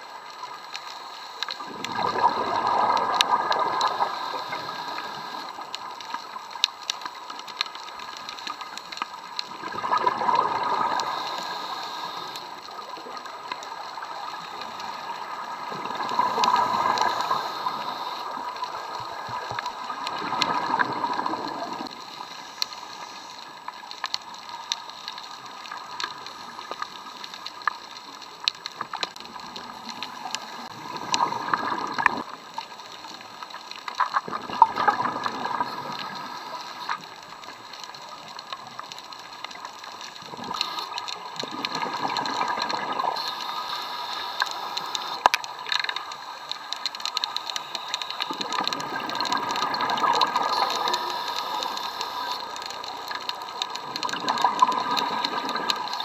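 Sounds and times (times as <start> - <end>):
faint steady hiss: 0.0 - 56.0
scattered ticks: 0.0 - 56.0
regulator bubbles underwater: 0.3 - 56.0.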